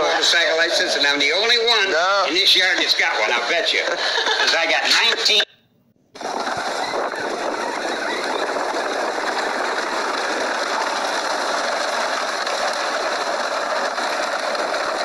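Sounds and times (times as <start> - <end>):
motorbike rattling on dirt path: 6.2 - 15.0.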